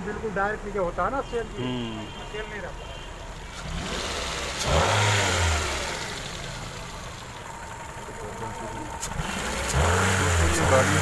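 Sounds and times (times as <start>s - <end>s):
car engine revving: 3.4s - 11.0s.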